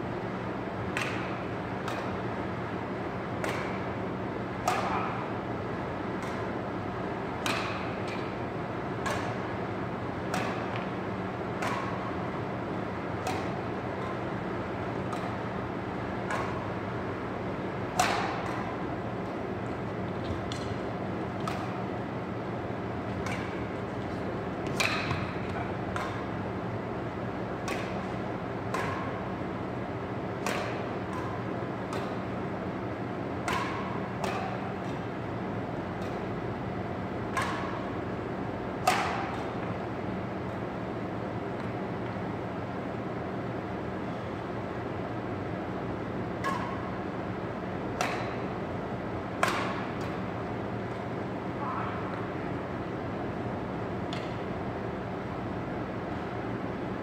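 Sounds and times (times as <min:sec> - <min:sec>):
steady hum: 0:00.0 - 0:57.0
badminton racquets hitting shuttlecock: 0:00.9 - 0:02.3, 0:03.4 - 0:03.9, 0:04.5 - 0:05.3, 0:06.1 - 0:09.6, 0:10.2 - 0:16.8, 0:17.9 - 0:22.1, 0:23.0 - 0:26.5, 0:27.5 - 0:29.5, 0:30.2 - 0:32.6, 0:33.4 - 0:35.2, 0:35.9 - 0:36.3, 0:37.2 - 0:38.1, 0:38.7 - 0:39.9, 0:46.4 - 0:47.2, 0:47.8 - 0:52.3, 0:54.0 - 0:54.5.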